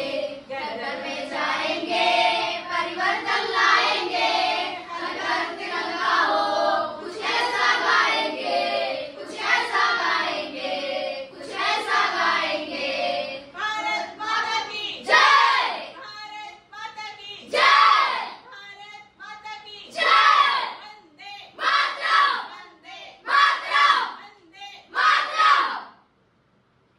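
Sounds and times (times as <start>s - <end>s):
children singing in unison: 0.0s - 13.5s.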